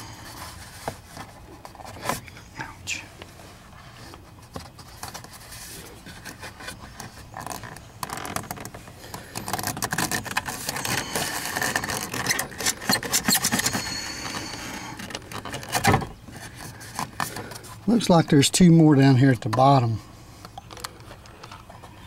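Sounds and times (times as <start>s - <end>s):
plastic trim clicking and scraping: 6.1s - 17.6s.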